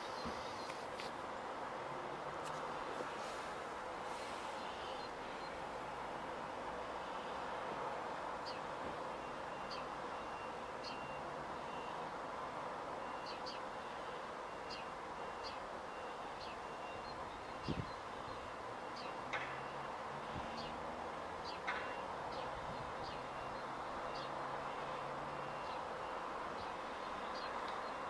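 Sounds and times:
small birds chirping: 0.0 - 1.1, 8.4 - 8.7, 13.2 - 13.7, 14.7 - 15.6, 16.4 - 19.2, 21.4 - 24.4, 26.5 - 28.0
distant lorry engine hum: 0.0 - 28.0
faint reversing alarm beeping: 4.0 - 7.8, 8.4 - 28.0.

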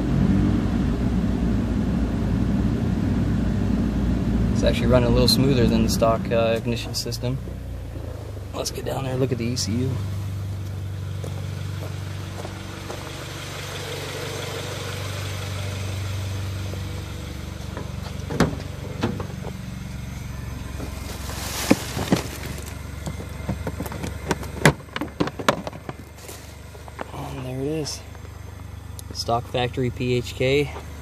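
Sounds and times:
muffled car engine idling: 0.0 - 31.0
rustle: 10.0 - 28.5
sharp clicks and knocks: 17.7 - 19.6, 21.7 - 26.1.

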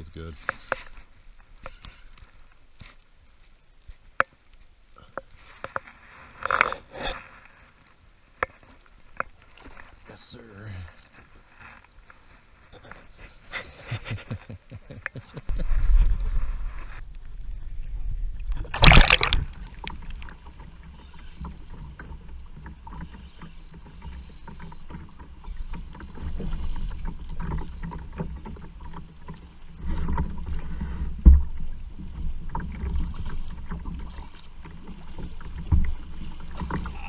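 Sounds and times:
water slapping against hull: 18.6 - 37.0
fish splashing at surface: 18.7 - 20.1.

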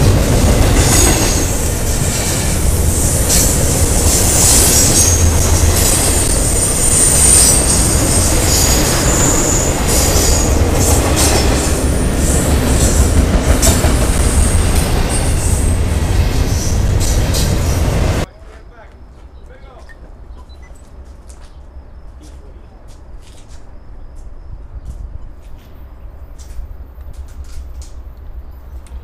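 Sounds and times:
train wheels rumbling on rail: 0.0 - 18.3, 20.0 - 29.0
wheel squeal: 4.1 - 10.5.

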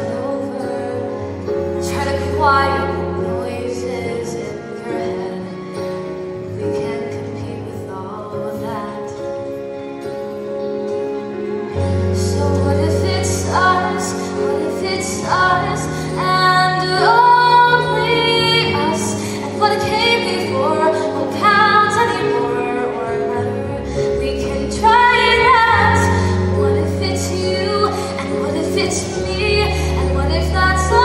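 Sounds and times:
girl singing a ballad: 0.0 - 9.5, 12.0 - 31.0.

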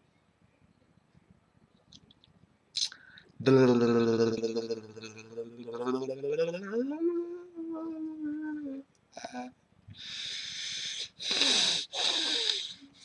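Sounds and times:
man humming: 2.8 - 9.6.

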